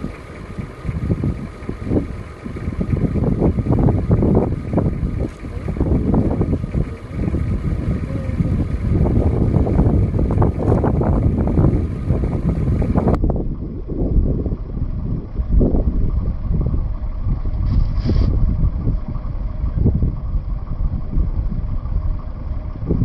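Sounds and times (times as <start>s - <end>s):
wind buffeting the microphone: 0.0s - 23.0s.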